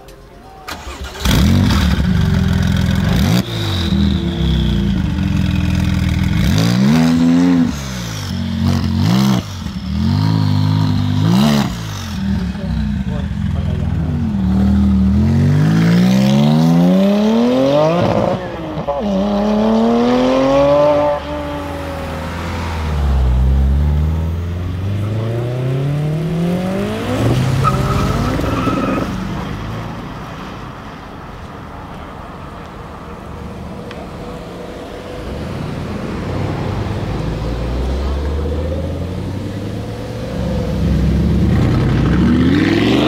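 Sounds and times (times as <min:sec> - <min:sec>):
second car accelerating: 0:00.7 - 0:30.2
car accelerating at full throttle: 0:01.0 - 0:29.6, 0:33.9 - 0:43.0.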